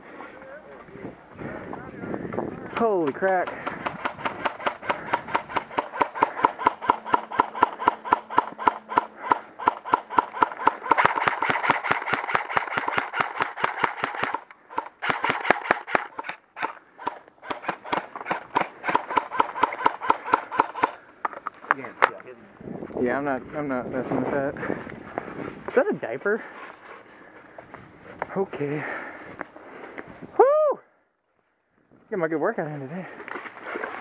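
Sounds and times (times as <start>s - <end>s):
airsoft rifle rapid shots: 2.8s - 21.0s.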